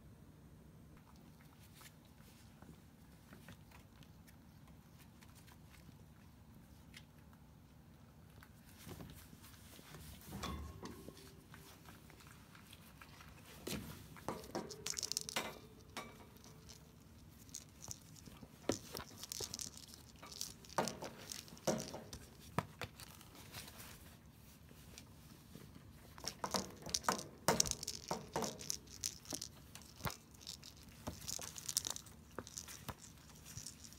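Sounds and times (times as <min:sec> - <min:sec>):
kitten playing with toy: 0:11.0 - 0:24.0, 0:26.0 - 0:33.9.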